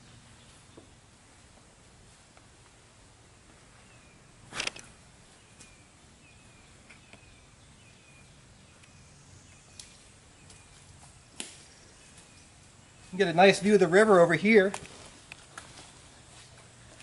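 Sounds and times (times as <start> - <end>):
bird chirping: 3.6 - 15.3
dry twigs snapping: 9.7 - 10.0, 11.3 - 11.7.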